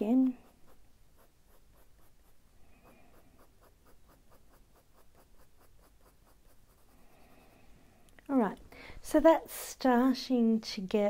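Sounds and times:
coloured pencil scratching on paper: 0.0 - 7.8.

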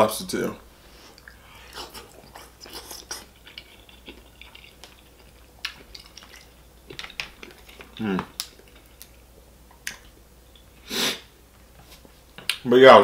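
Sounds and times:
wet chewing and lip smacks: 1.1 - 10.8.

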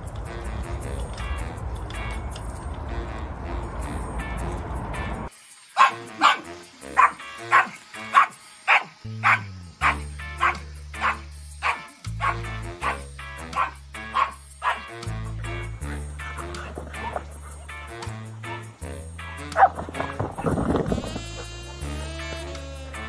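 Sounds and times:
background music: 0.0 - 23.0
small dog barking: 5.8 - 14.9.

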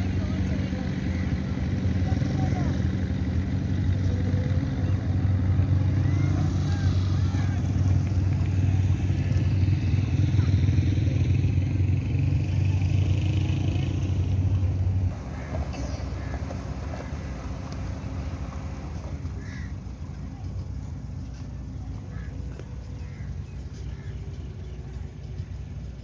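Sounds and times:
motorcycle engine rumbling: 0.0 - 26.0.

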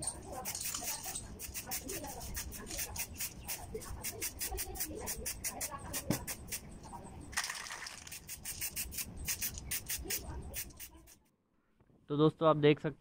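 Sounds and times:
spray can hissing: 0.4 - 6.7, 7.9 - 11.2.

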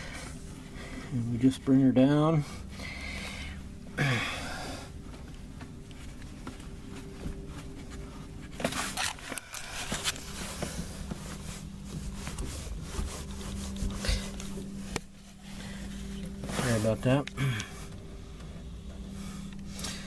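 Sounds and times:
low steady hum: 0.0 - 20.0
rubbing and scraping from handling: 5.7 - 20.0.

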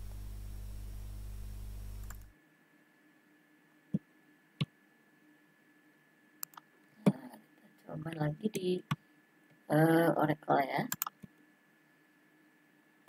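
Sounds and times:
steady low hum: 0.0 - 2.4
computer mouse clicks: 6.4 - 6.6, 10.9 - 11.4.

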